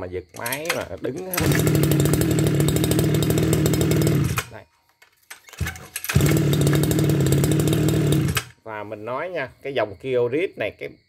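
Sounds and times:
recoil starter pull: 0:00.3 - 0:04.6, 0:05.2 - 0:08.6
brush cutter engine running: 0:00.4 - 0:04.6, 0:05.4 - 0:08.6.

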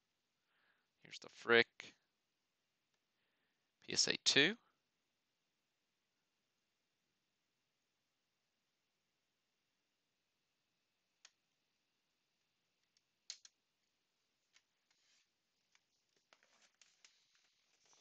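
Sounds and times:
faint plastic clicks: 0:12.8 - 0:18.0.

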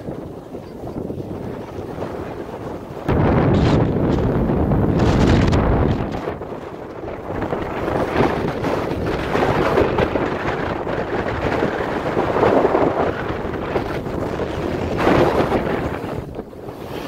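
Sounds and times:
wind rushing over microphone: 0:00.0 - 0:17.0
ski edges scraping on snow: 0:13.8 - 0:17.0.

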